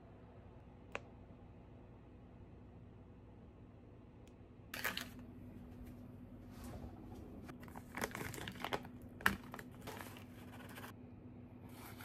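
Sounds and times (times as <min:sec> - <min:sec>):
plastic pouch crinkling: 0:07.6 - 0:10.9.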